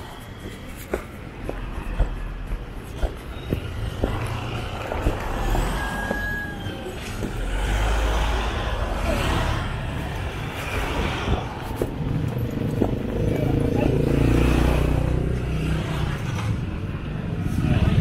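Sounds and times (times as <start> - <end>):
car and motorcycle engines: 1.2 - 18.0
deep rumble of passing car: 1.5 - 18.0.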